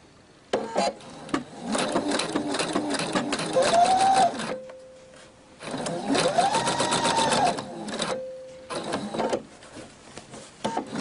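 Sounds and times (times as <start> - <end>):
faint steady hum: 0.0 - 11.0
electric sewing machine stitching: 0.8 - 4.6, 5.6 - 9.4, 10.8 - 11.0.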